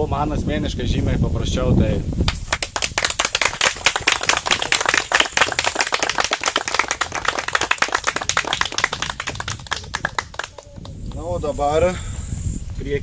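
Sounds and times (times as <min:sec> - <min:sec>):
people applauding: 0:02.3 - 0:11.3.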